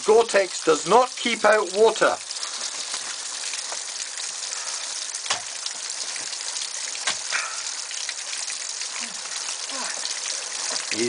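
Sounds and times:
waterfall pouring and spraying: 0.0s - 11.0s
ice axes striking ice: 7.0s - 7.3s.

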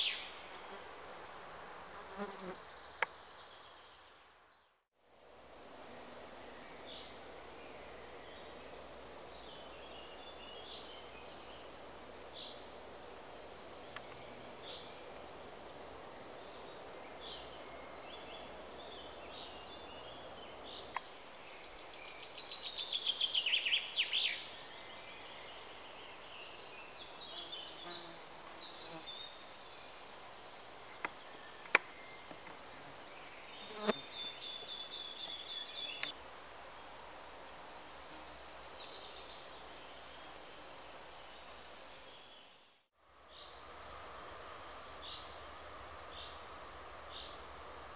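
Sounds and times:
songbirds chirping: 0.0s - 1.4s, 2.0s - 4.9s, 5.9s - 47.9s
high thin bird buzz: 33.5s - 36.1s.

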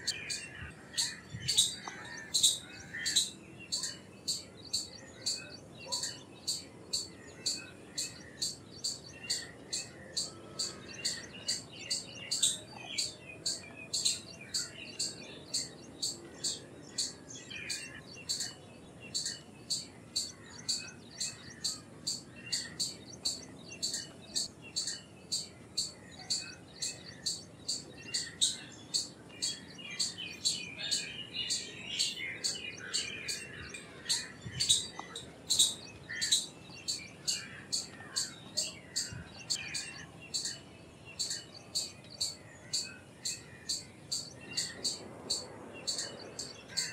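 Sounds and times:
squirrel chirping: 0.0s - 40.6s, 41.2s - 46.9s.

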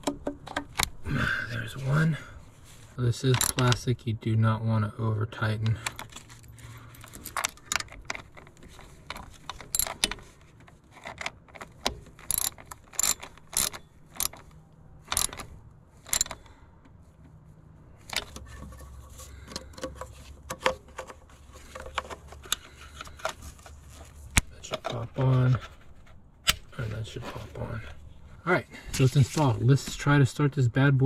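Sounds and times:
hand ratchet clicking: 9.1s - 10.2s, 11.0s - 14.5s, 15.1s - 16.4s.

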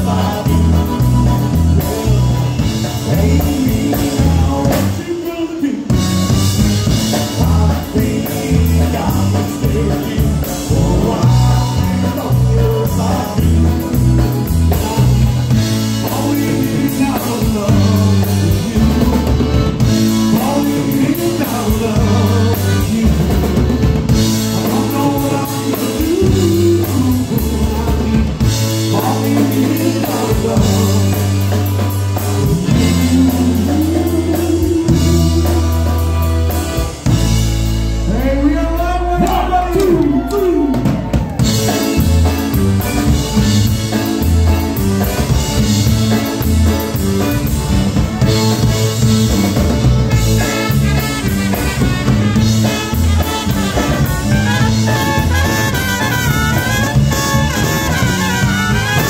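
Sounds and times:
man singing lead vocal: 0.0s - 37.2s, 38.0s - 43.6s, 50.1s - 59.0s
drum kit: 0.0s - 59.0s
electric bass guitar: 0.0s - 59.0s
concertina: 40.9s - 59.0s.

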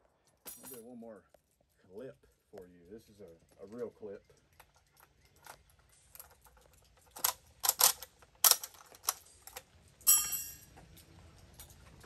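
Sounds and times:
rifle bolt closing with clack: 6.3s - 9.6s
cartridges clicking into magazine: 6.3s - 9.7s.

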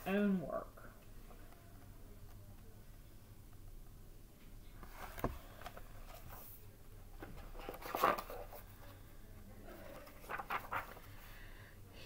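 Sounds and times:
paper page rustling: 7.5s - 8.7s, 9.8s - 11.2s.

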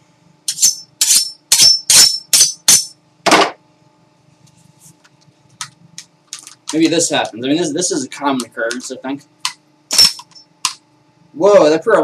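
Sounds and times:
knife scraping against metal: 0.5s - 2.9s.

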